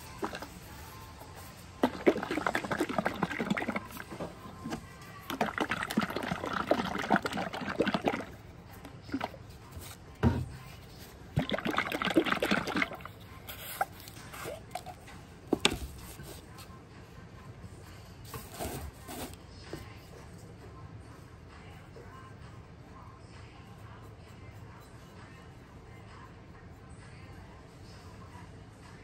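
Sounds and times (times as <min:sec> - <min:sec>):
glaze sloshing in shaken jar: 0:00.0 - 0:10.1, 0:10.8 - 0:15.0.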